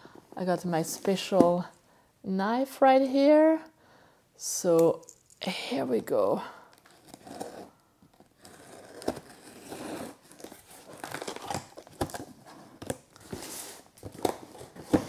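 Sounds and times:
tape and cardboard crinkling: 0:06.7 - 0:15.0.

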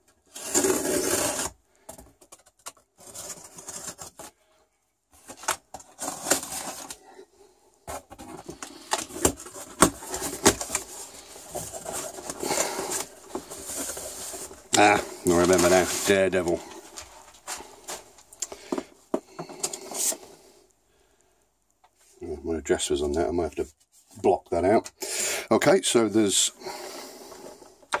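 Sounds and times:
cardboard scraping and rubbing: 0:00.2 - 0:01.6, 0:02.8 - 0:04.4, 0:05.2 - 0:07.0, 0:07.9 - 0:18.2
packing tape ripping: 0:00.3 - 0:01.6
packing paper rustling: 0:05.2 - 0:07.1, 0:07.9 - 0:18.8.

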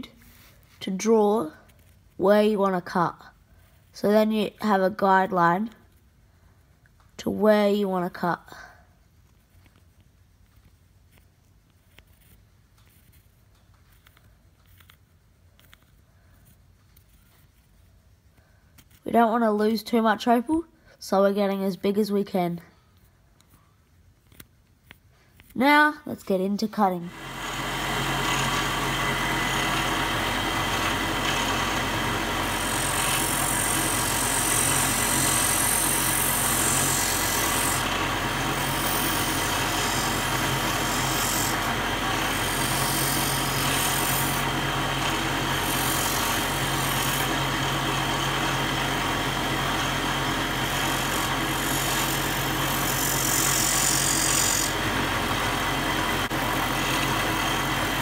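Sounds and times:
bright grinding hiss: 0:27.1 - 0:55.2
grinding machine hum: 0:27.1 - 0:58.0.

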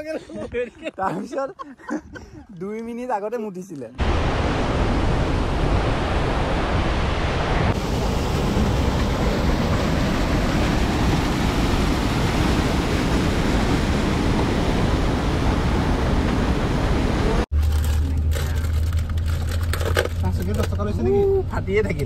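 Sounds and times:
waterfall rushing: 0:04.0 - 0:17.5.

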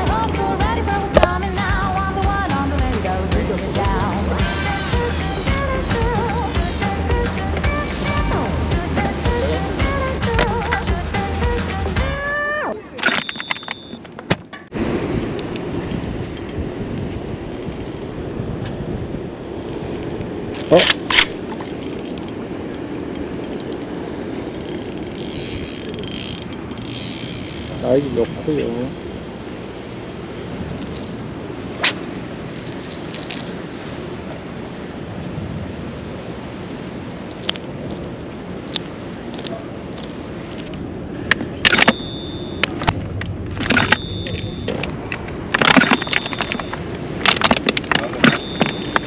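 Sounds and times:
jingling chime with ringing tone: 0:13.0 - 0:14.0, 0:41.7 - 0:42.6, 0:43.7 - 0:44.8, 0:45.8 - 0:46.8, 0:48.2 - 0:49.0
fishing reel cranking: 0:24.6 - 0:31.2.

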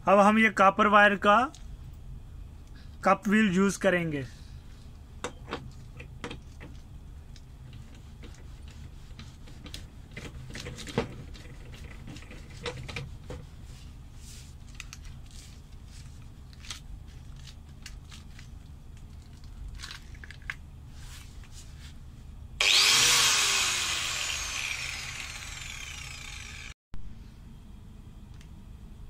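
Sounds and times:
angle grinder spinning: 0:22.6 - 0:26.8.

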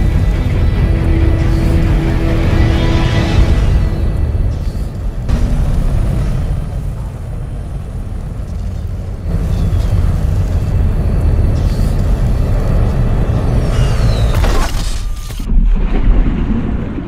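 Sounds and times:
low rumbling jet thrusters: 0:00.0 - 0:14.3.

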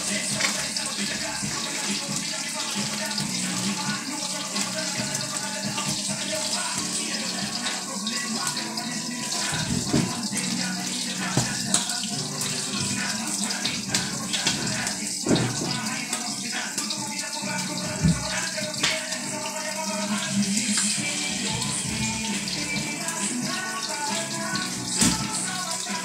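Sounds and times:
wok hissing on gas burner: 0:19.2 - 0:26.0.

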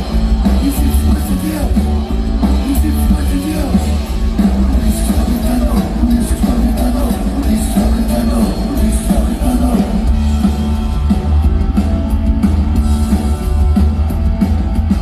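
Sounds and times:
bass guitar: 0:00.0 - 0:15.0
drums: 0:00.0 - 0:15.0
electric guitar: 0:00.0 - 0:15.0.

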